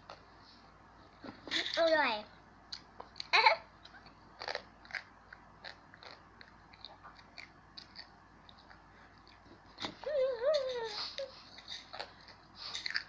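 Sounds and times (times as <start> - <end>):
child chewing crunchy snack: 3.9 - 9.9, 10.8 - 13.0
child humming: 10.0 - 11.3.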